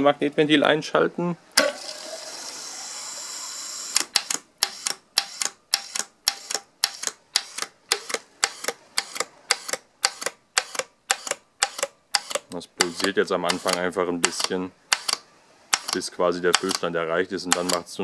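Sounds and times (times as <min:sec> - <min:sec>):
water valve hissing: 0:01.6 - 0:16.0
valve clicking open and shut: 0:03.6 - 0:16.8.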